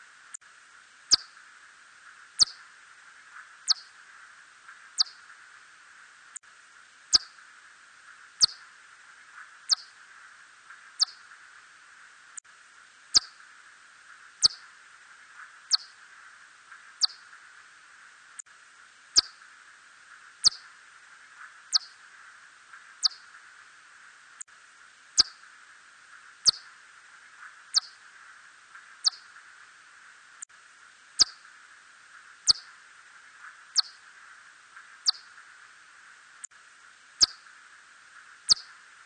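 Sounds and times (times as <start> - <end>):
steady hiss: 0.0 - 39.0
bat chirps sweeping downward: 2.4 - 2.6, 3.7 - 3.9, 11.0 - 11.2, 20.4 - 20.6, 29.0 - 29.3, 31.2 - 31.4, 32.5 - 32.7, 33.8 - 34.0, 35.0 - 35.3, 37.2 - 37.4, 38.5 - 38.7.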